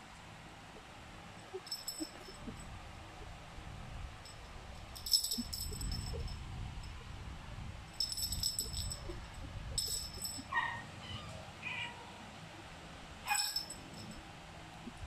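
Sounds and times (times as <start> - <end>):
jingling cat toy: 1.6 - 2.7, 4.2 - 6.4, 8.0 - 10.5, 13.3 - 14.2
kittens mewing: 10.2 - 12.2.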